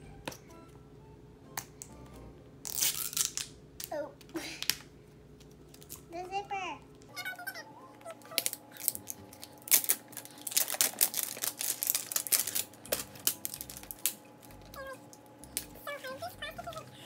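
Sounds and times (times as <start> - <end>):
plastic wrapping crinkling: 2.7 - 3.6, 5.6 - 6.1, 8.1 - 15.8.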